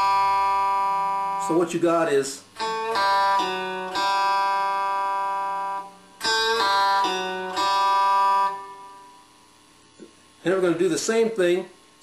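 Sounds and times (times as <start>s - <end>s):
electric guitar played slowly: 0.0s - 1.8s, 2.5s - 9.2s.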